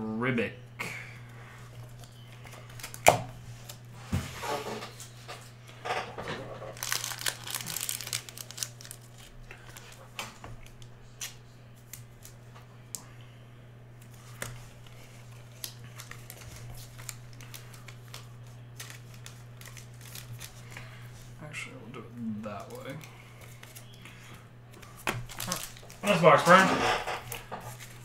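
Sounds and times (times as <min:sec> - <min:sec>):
steady low hum: 0:00.0 - 0:28.0
plastic wrapping crinkling: 0:06.6 - 0:10.0, 0:14.1 - 0:20.9, 0:24.8 - 0:26.6.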